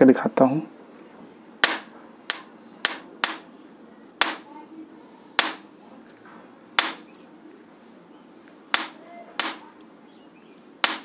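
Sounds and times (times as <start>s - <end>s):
snapping cracks of sparks: 1.6s - 3.5s, 4.2s - 4.5s, 5.4s - 5.7s, 6.8s - 7.2s, 8.7s - 9.9s, 10.8s - 11.0s.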